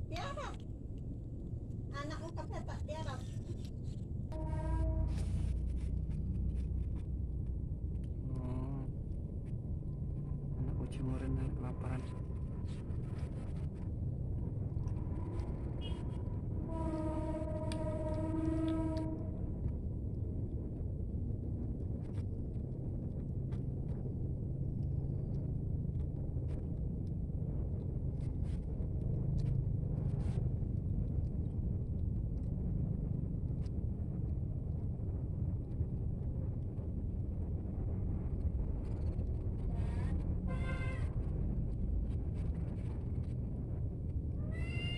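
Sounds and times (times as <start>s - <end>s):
low rumble of traffic: 0.0s - 44.9s
long vehicle horn: 4.4s - 5.5s, 16.6s - 19.3s, 40.5s - 41.1s
kitten meowing: 44.4s - 44.9s.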